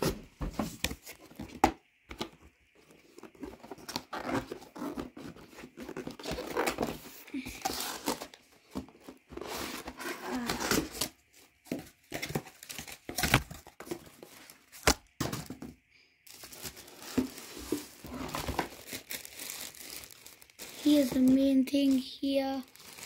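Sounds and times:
packaging crinkling and tearing: 2.8s - 8.4s, 9.4s - 15.5s, 16.3s - 23.0s.

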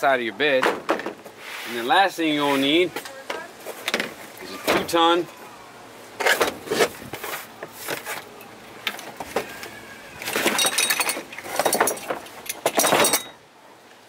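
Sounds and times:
metal hooks and cable clinking: 10.2s - 13.4s.

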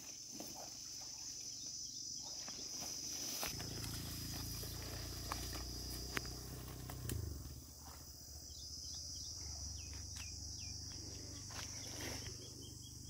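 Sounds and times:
high-pitched insect drone: 0.0s - 13.0s
footsteps through tall grass: 2.3s - 8.2s, 11.4s - 12.5s.

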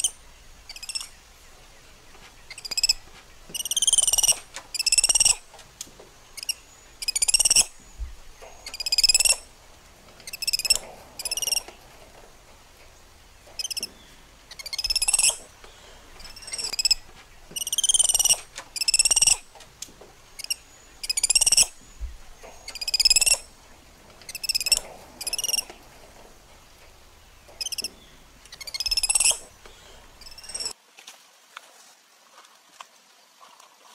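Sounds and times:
baby monkey whistling cries: 2.6s - 2.9s, 3.6s - 5.4s, 6.4s - 7.7s, 8.7s - 9.4s, 14.6s - 15.4s, 17.6s - 19.4s, 22.7s - 23.4s, 28.6s - 29.4s.

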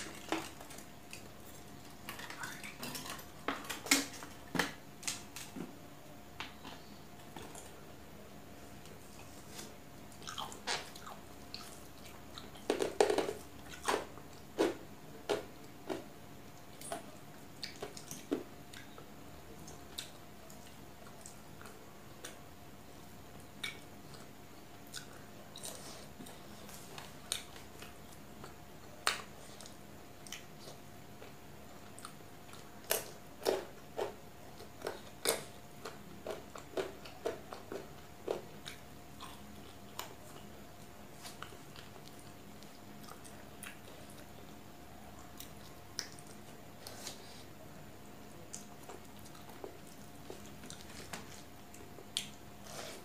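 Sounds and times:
faint steady hum: 0.0s - 53.0s
chewing with wet mouth clicks: 16.6s - 19.0s, 19.6s - 22.4s, 23.4s - 26.4s, 27.0s - 40.5s, 41.2s - 47.0s, 48.5s - 52.9s.

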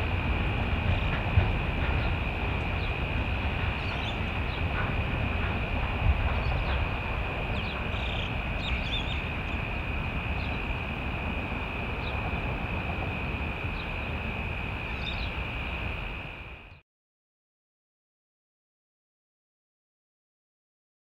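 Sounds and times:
distant diesel locomotives rumbling: 0.0s - 16.8s
birds chirping: 1.8s - 5.6s, 6.2s - 11.0s, 11.8s - 12.4s, 13.1s - 16.8s.

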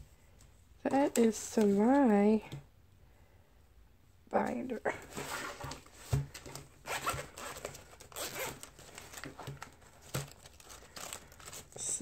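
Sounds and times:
zipper being unzipped: 6.8s - 8.7s.

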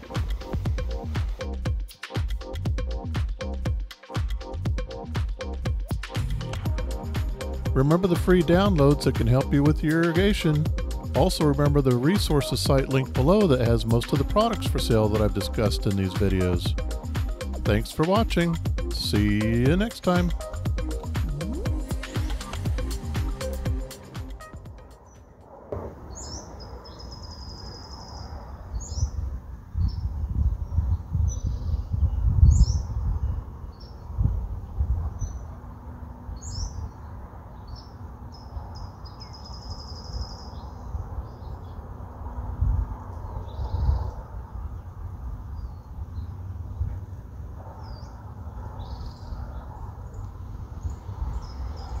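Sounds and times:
flycatcher calling: 5.9s - 25.4s, 26.0s - 29.2s
small birds chirping: 15.1s - 23.9s, 26.0s - 34.3s, 36.4s - 41.9s, 47.8s - 52.0s
buzzy bird trill: 18.8s - 25.4s
wind rumbling on microphone: 25.1s - 52.0s.

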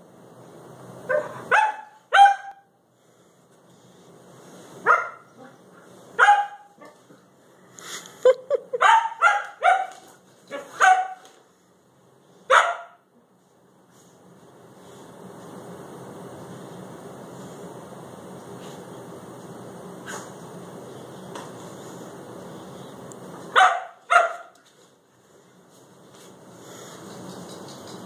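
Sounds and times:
dog barking excitedly: 1.0s - 2.7s, 4.8s - 7.1s, 8.7s - 11.4s, 12.4s - 13.1s, 23.4s - 24.6s.

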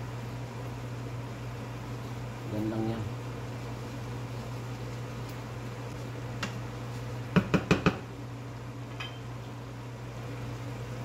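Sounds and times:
low steady hum: 0.0s - 11.0s
wooden spoon knocking on pan rim: 7.3s - 8.0s.

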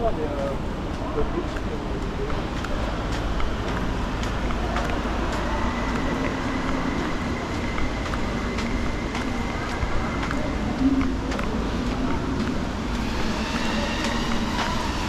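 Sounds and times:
low urban rumble: 0.0s - 15.0s.

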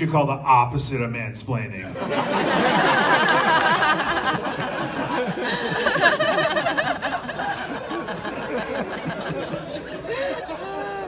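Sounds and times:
audience laughing: 1.8s - 11.0s
murmured chatter: 4.7s - 11.0s.

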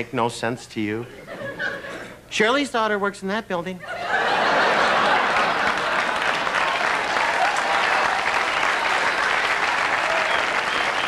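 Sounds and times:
audience applauding: 4.4s - 11.0s.

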